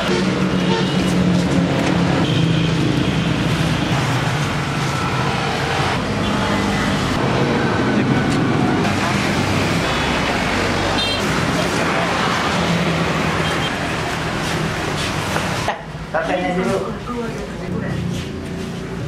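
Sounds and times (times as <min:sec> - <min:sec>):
road traffic with engine hum: 0:00.0 - 0:19.0.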